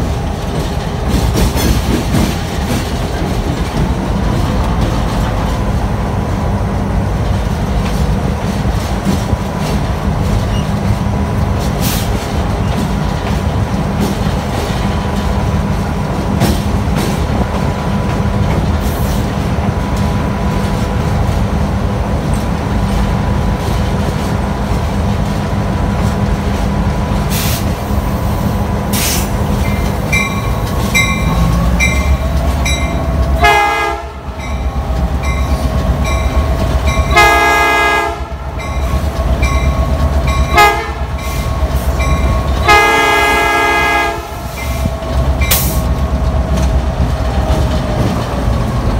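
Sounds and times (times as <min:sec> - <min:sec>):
diesel locomotive engine running: 0:00.0 - 0:48.9
train bell ringing: 0:29.6 - 0:33.2, 0:34.4 - 0:37.4, 0:38.6 - 0:42.7
train air horn blasts: 0:33.4 - 0:34.4, 0:37.1 - 0:38.6, 0:40.5 - 0:41.5, 0:42.6 - 0:44.8.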